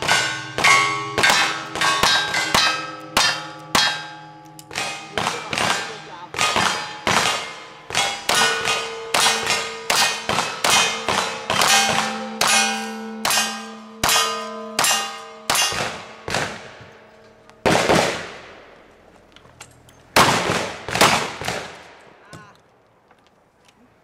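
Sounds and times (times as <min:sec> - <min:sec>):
steel target ringing: 0:00.0 - 0:17.9
rifle shots: 0:04.7 - 0:12.7, 0:14.8 - 0:16.9, 0:17.6 - 0:18.8, 0:20.2 - 0:22.0.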